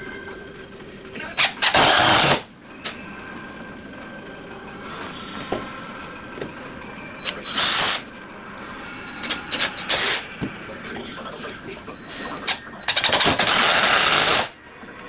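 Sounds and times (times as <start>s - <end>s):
cordless drill driving screws: 1.4s - 2.4s, 7.5s - 8.0s, 12.9s - 14.5s.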